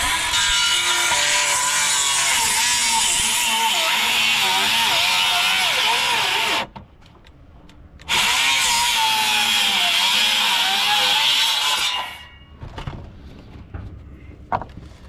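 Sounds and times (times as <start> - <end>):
circular saw cutting timber: 0.0 - 6.7, 8.1 - 12.4.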